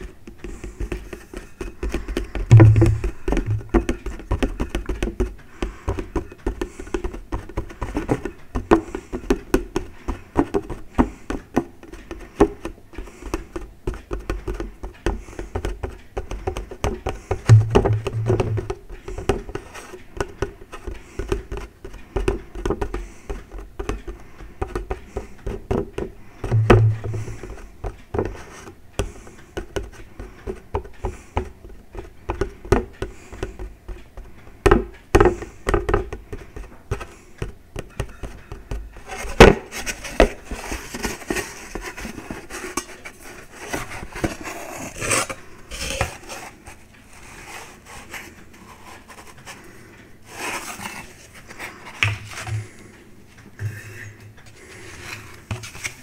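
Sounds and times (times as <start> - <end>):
fingers tapping paper plate: 0.0 - 46.6
scratching and scraping: 39.0 - 49.6, 50.3 - 52.8.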